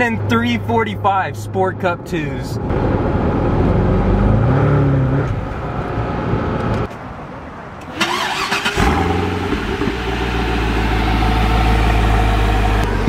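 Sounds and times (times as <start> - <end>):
car engine starting and idling: 7.8 - 13.0.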